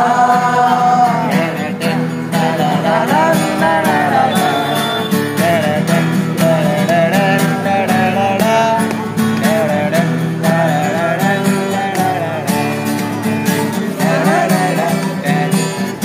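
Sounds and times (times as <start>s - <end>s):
acoustic guitar strumming: 0.0s - 16.0s
men singing: 0.0s - 16.0s.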